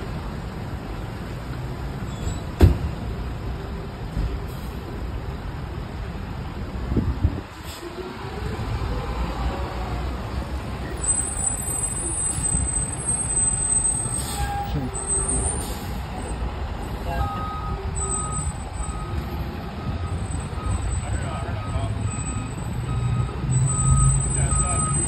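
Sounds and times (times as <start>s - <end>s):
diesel engine rumbling: 0.0s - 25.0s
reversing alarm beeping: 17.1s - 25.0s.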